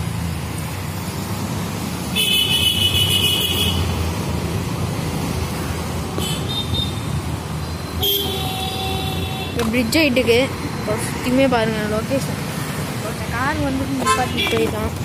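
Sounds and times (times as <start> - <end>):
road traffic rumbling: 0.0 - 15.0
vehicle horn honking: 2.2 - 3.8, 8.0 - 9.6, 14.0 - 14.6.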